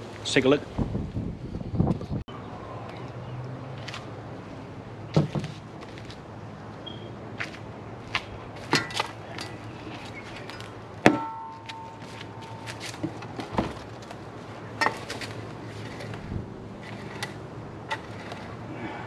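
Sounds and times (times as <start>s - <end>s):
shovel blade metallic ring: 11.1s - 13.0s.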